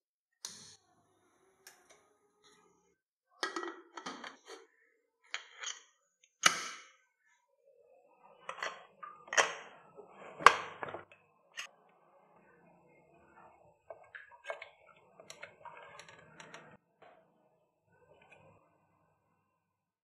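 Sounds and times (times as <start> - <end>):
spatula stirring wet food: 8.4 - 16.8.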